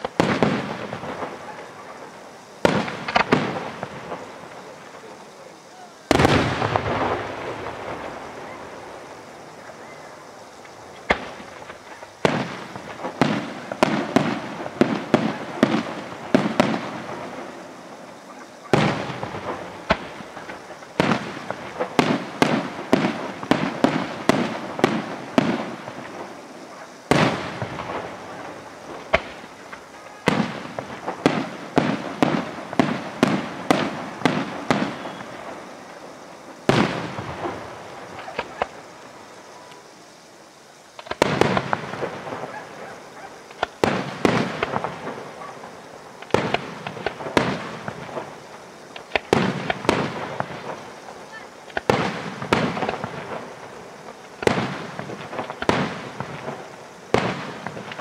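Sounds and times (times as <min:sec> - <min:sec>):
firework booms: 0:00.0 - 0:40.3, 0:40.9 - 0:58.0
firework crackling: 0:00.0 - 0:58.0.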